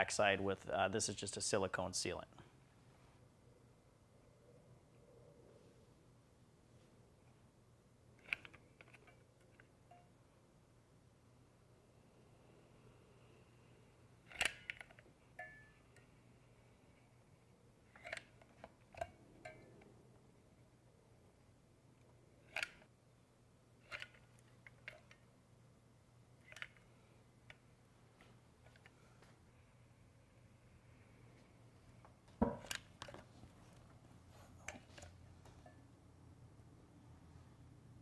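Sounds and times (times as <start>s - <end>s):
brief metallic ring: 15.4s - 15.8s.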